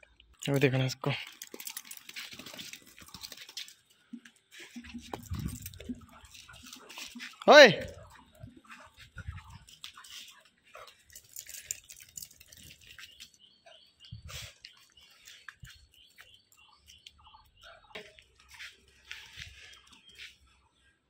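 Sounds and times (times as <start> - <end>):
small birds chirping: 0.4 - 21.0
dog claws clicking on stone: 11.1 - 13.3.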